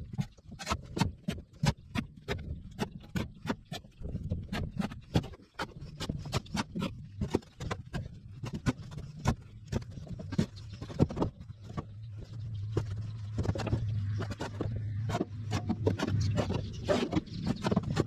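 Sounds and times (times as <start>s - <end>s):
low steady hum: 7.0s - 18.0s.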